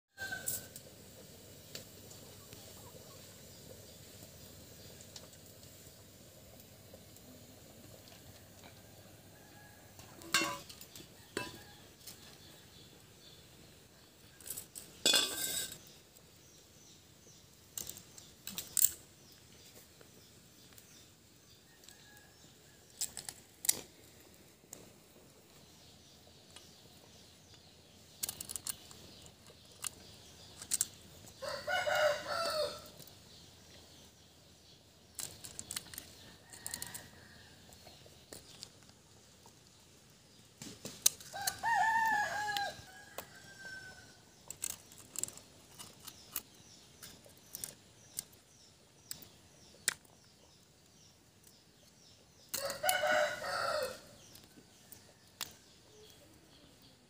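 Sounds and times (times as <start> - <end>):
blade cracking snail shells: 16.8 - 19.3, 22.4 - 24.0, 25.8 - 31.4, 35.0 - 37.1, 44.3 - 50.3, 54.2 - 56.2
rooster crowing: 31.4 - 33.0, 41.3 - 44.2, 52.6 - 54.2.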